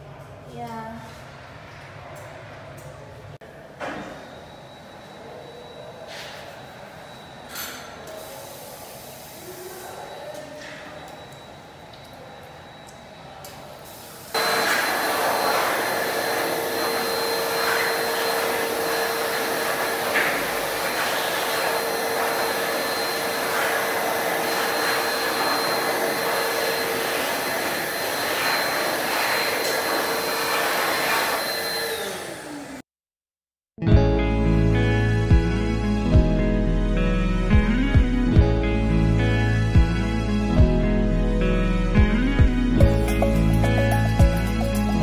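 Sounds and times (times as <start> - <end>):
hand dryer blowing with whine: 13.9 - 32.8.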